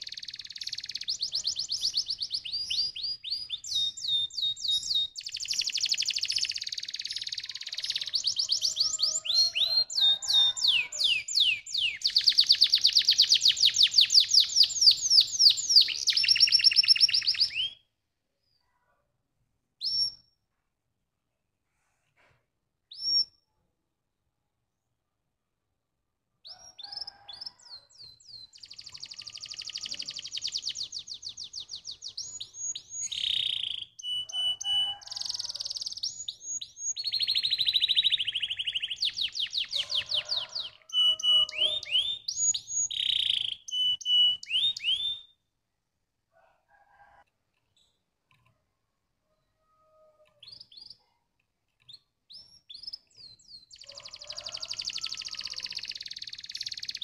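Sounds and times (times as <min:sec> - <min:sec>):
canary singing trills and whistles: 0:00.0 - 0:17.9, 0:19.8 - 0:20.3, 0:22.9 - 0:23.5, 0:26.5 - 0:45.4, 0:50.4 - 0:51.1, 0:51.8 - 0:57.0.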